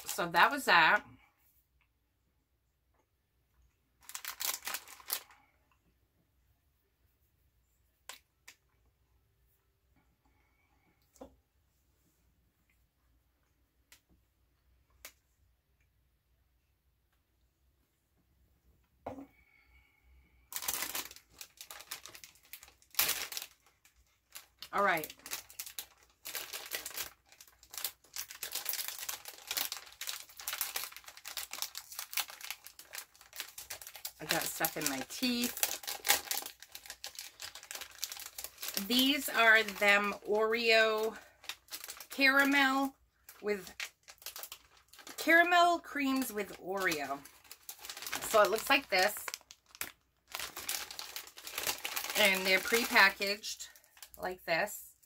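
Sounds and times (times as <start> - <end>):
plastic packaging crinkling: 0.0 - 0.9, 4.0 - 5.5, 20.5 - 54.5.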